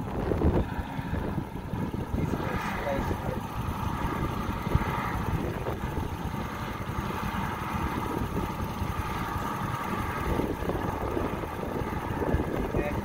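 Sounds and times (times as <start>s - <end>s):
helicopter turbine engines whining: 0.0s - 13.0s.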